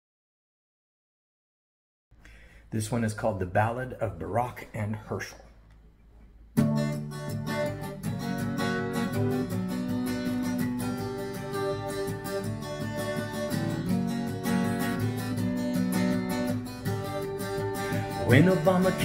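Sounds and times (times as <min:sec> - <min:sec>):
acoustic guitar strumming: 0:06.6 - 0:19.0.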